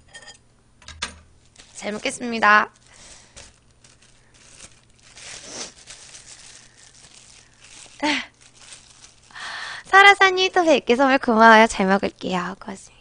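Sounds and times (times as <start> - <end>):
food packaging crinkling: 1.4 - 10.6.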